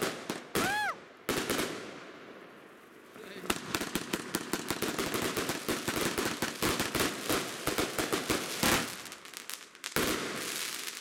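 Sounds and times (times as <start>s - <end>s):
fireworks crackling bangs: 0.0s - 11.0s.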